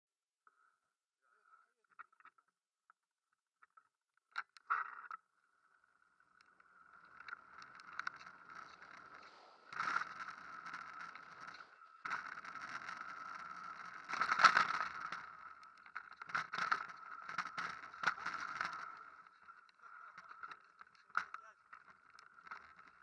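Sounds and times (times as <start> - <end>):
bike rattling over gravel: 7.0 - 19.9.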